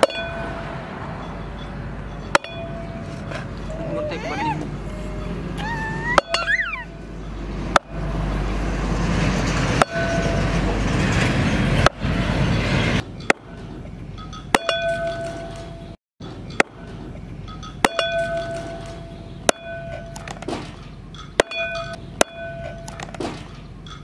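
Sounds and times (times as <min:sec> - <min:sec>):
metallic blade ring: 0:00.0 - 0:03.2, 0:21.1 - 0:23.0.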